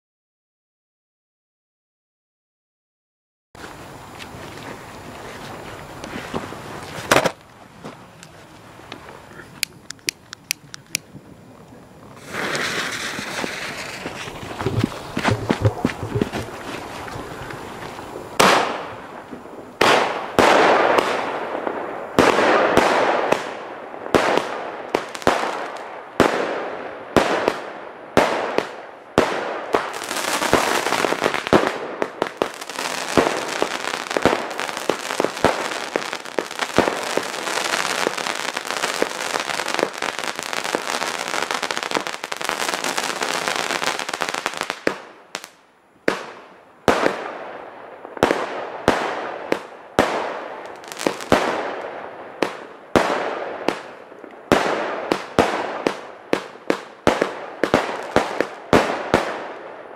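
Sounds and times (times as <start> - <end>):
steady firework hiss: 3.6 - 59.6
rapid firework pops: 6.4 - 7.4, 12.2 - 16.8, 28.2 - 47.3
firework shots and bursts: 12.2 - 16.2, 18.4 - 59.8.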